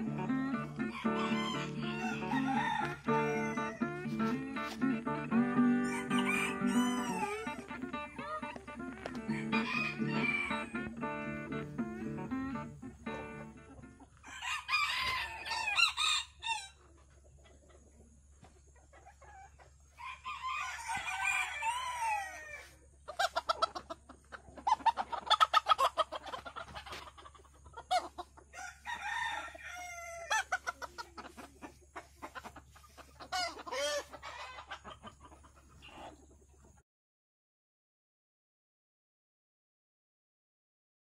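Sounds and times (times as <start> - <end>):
roosters crowing: 0.0 - 13.5, 14.1 - 16.8, 19.9 - 22.8, 28.5 - 30.8, 33.3 - 34.7
hens clucking: 0.0 - 36.8.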